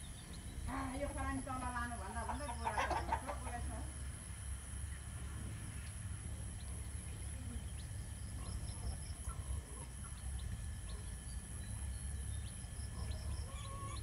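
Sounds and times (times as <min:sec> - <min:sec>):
chickens chirping and peeping: 0:00.0 - 0:14.0
steady low rumble: 0:03.2 - 0:14.0.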